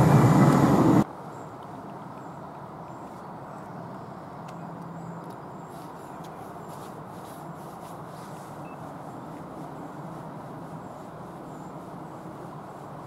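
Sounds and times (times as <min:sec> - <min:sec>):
steady low rumble: 0:00.0 - 0:01.1.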